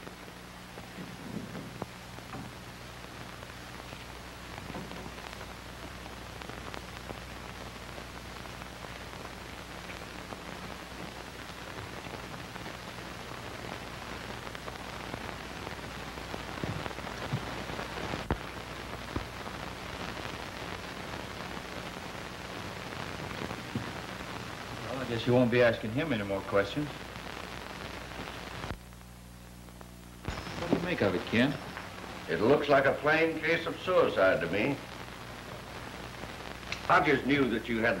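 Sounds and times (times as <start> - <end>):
crackles: 0.0 - 38.0
film soundtrack hiss: 0.0 - 38.0
low mains hum: 0.0 - 38.0.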